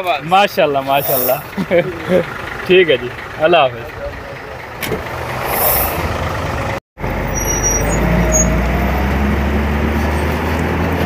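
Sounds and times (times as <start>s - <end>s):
diesel truck engine pulling away: 0.0s - 11.0s
broad rushing noise: 1.0s - 1.5s, 5.2s - 6.3s.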